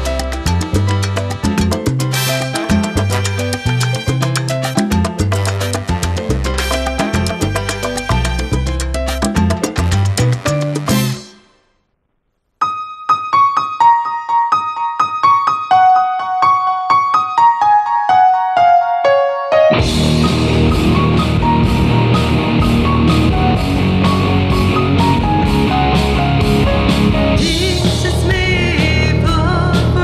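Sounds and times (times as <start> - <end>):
metal band playing: 0.0 - 11.6, 19.7 - 30.0
keyboard playing descending notes: 19.1 - 28.4.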